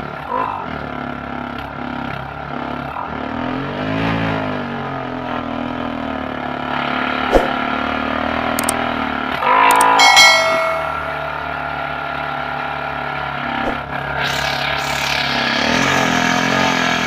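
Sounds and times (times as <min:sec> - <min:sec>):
sharp click: 0:08.6 - 0:08.8
electric air compressor running: 0:14.8 - 0:17.0.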